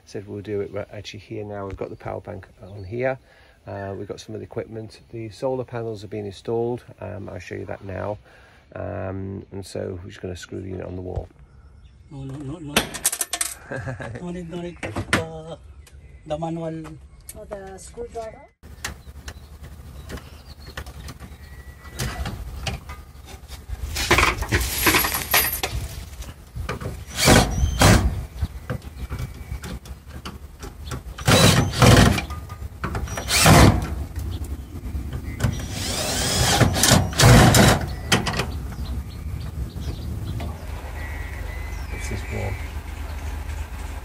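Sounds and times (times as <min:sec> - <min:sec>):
cordless drill driving screws: 0:27.1 - 0:28.0, 0:31.2 - 0:32.2, 0:33.1 - 0:33.9, 0:35.5 - 0:37.9.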